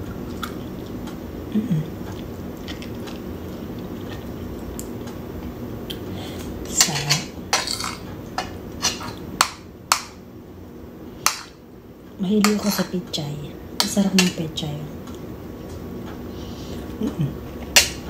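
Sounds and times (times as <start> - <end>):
low room hum: 0.0 - 18.0
cutlery clinking on plate: 6.8 - 9.2.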